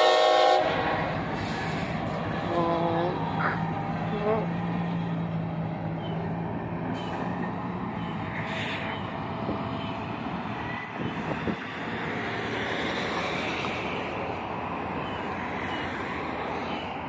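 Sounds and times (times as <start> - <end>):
freight train rolling on rails: 0.0 - 17.0
wind on microphone: 10.5 - 12.0.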